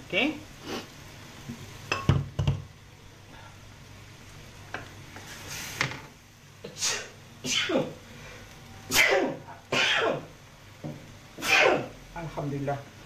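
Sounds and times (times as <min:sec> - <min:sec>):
faint sizzling in oil: 0:00.0 - 0:13.0
sharp intake of breath: 0:00.6 - 0:00.9
wooden spatula knocking wok: 0:01.5 - 0:02.7, 0:10.8 - 0:11.1
person sneezing: 0:06.6 - 0:07.9, 0:08.9 - 0:10.3, 0:11.4 - 0:11.9.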